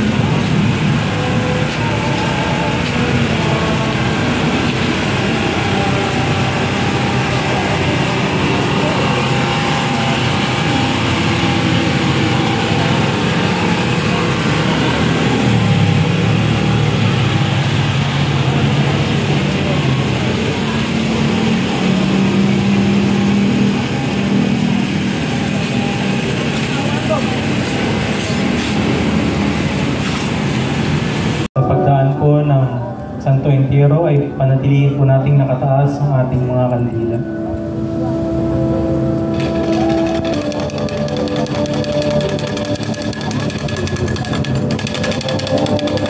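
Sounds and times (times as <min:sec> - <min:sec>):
small engine running: 0:00.0 - 0:29.9, 0:39.3 - 0:46.0
murmur of crowd: 0:00.0 - 0:30.4.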